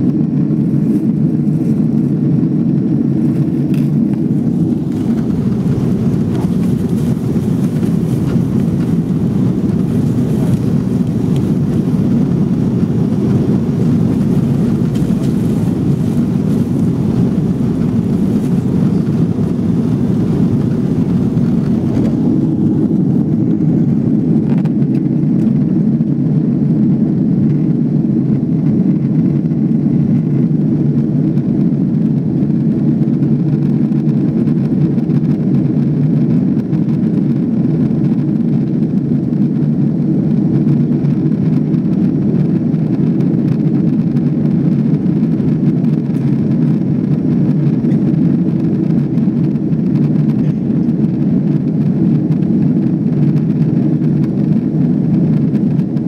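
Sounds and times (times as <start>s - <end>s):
airplane cabin roar: 0.0s - 56.0s.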